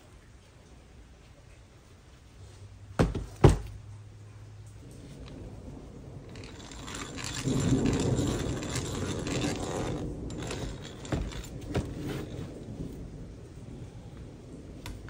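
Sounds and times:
hand drill gears turning: 6.2s - 12.7s.

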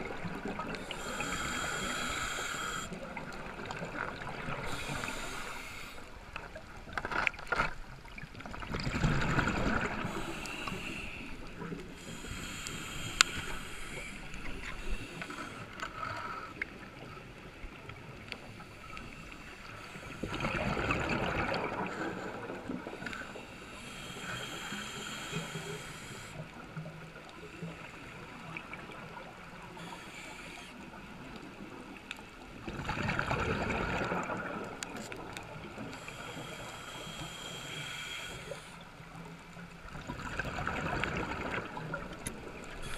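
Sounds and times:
scuba regulator inhales hissing: 0.7s - 3.0s, 4.6s - 6.1s, 9.9s - 11.3s, 12.0s - 16.6s, 23.0s - 26.4s, 29.8s - 30.8s, 35.8s - 38.8s
exhaled bubbles rushing: 20.3s - 22.6s, 32.7s - 34.8s, 40.0s - 42.6s.

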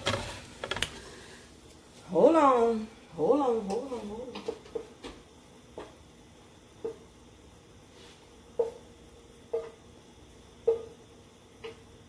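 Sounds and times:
gas burner hissing: 0.0s - 2.8s.

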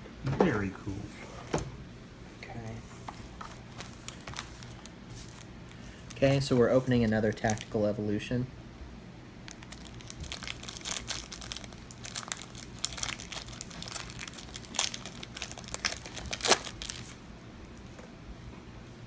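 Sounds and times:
foil wrapper crinkling: 3.6s - 7.9s, 9.5s - 17.2s.

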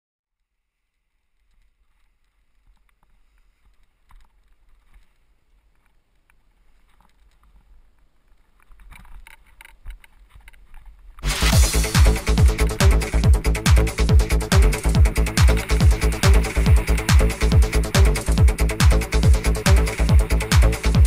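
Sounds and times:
rustles and knocks of lines: 0.8s - 11.5s.

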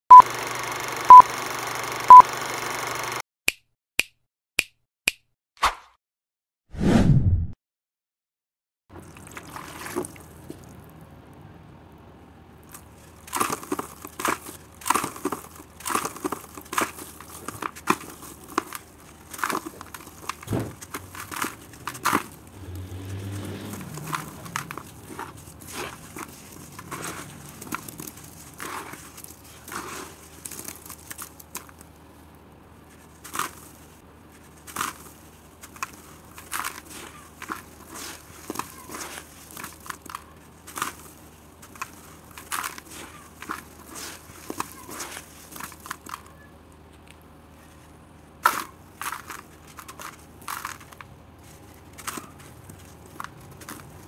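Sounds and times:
hands crushing wet dirt: 9.0s - 11.0s, 12.6s - 54.0s
wet dirt crumbling in water: 9.0s - 11.0s.

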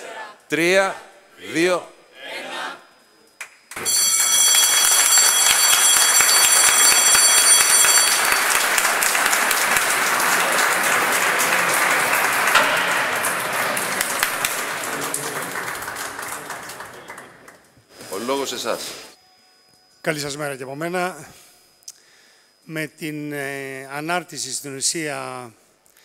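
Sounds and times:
crowd applauding: 3.4s - 18.7s
high steady bell ringing: 3.8s - 15.9s.

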